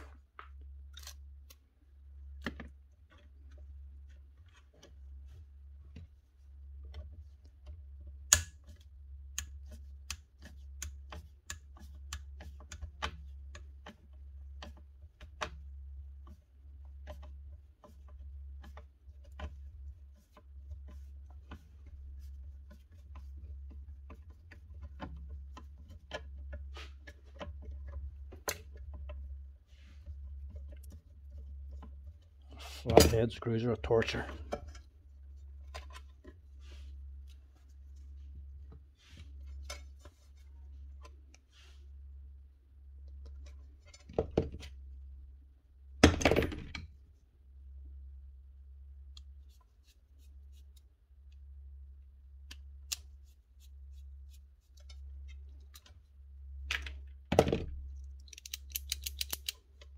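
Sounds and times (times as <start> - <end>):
screwdriver clicks and taps: 8.3 - 8.6, 58.1 - 59.9.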